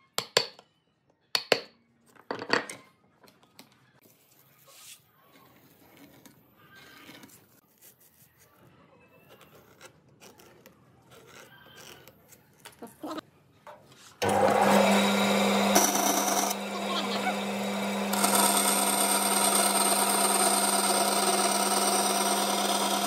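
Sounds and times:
band saw cutting wood: 14.2 - 23.0.

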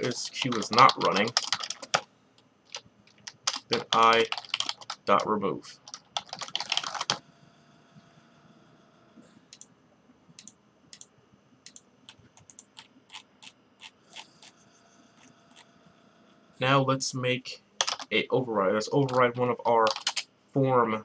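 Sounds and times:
computer keyboard typing: 0.0 - 2.1, 2.7 - 7.2, 11.7 - 14.5, 17.8 - 18.1, 19.0 - 20.2.

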